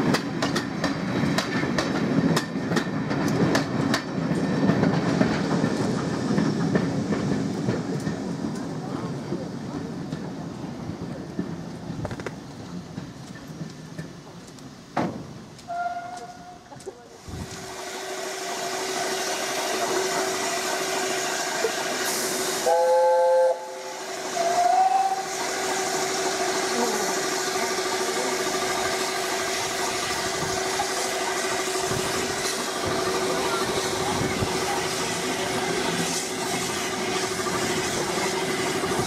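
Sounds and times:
steam locomotive hissing: 0:00.0 - 0:39.0
locomotive whistle: 0:15.7 - 0:16.8, 0:22.6 - 0:26.0.

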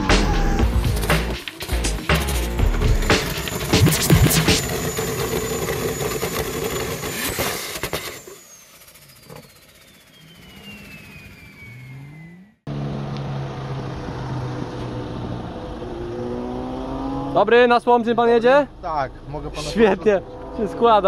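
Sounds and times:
car engine: 0:03.1 - 0:21.0
falling whistle: 0:08.4 - 0:12.6
engine droning: 0:08.4 - 0:17.4.

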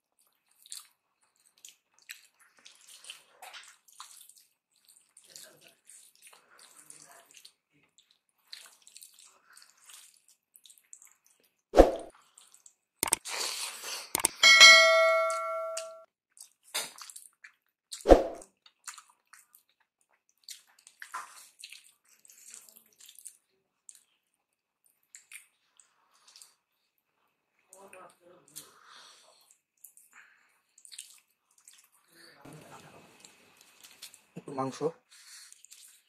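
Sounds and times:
bell-like ding: 0:14.2 - 0:16.0.

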